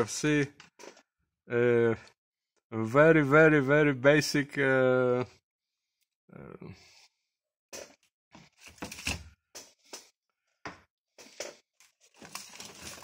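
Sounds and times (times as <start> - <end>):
cable and wires being handled: 7.8 - 10.2, 11.2 - 13.0.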